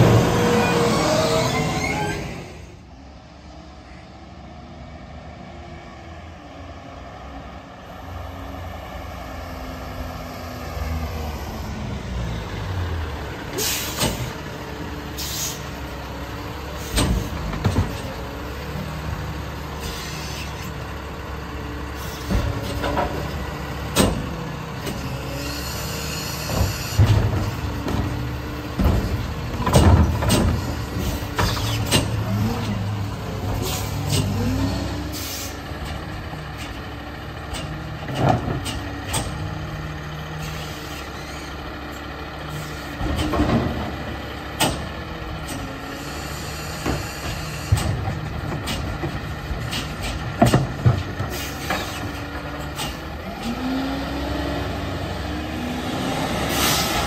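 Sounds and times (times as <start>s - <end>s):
hydraulic arm clanking and banging: 13.2s - 19.1s, 21.9s - 57.0s
air brakes hissing: 13.5s - 14.4s, 15.2s - 15.8s, 19.8s - 20.7s, 21.9s - 22.8s, 33.6s - 34.3s, 35.1s - 35.6s, 40.4s - 41.5s, 51.3s - 52.2s.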